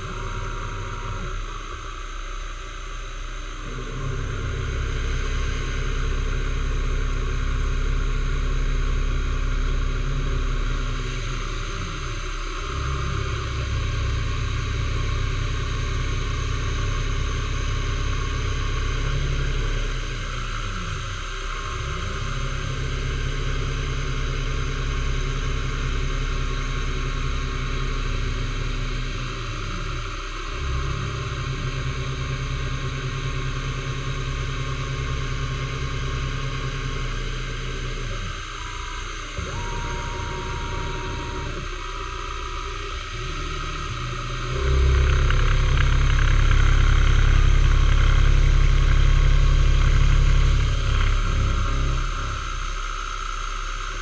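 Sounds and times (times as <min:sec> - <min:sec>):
milling machine cutting metal: 0:36.2 - 0:54.0.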